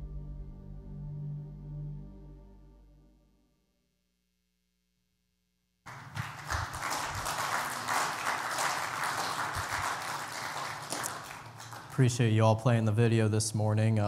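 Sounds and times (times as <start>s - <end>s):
congregation applauding: 5.9s - 12.4s.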